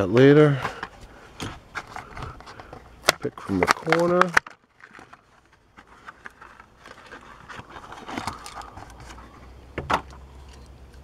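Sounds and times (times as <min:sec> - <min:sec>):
plastic cracking: 0:00.7 - 0:09.3
plastic blister crinkling: 0:00.7 - 0:09.4.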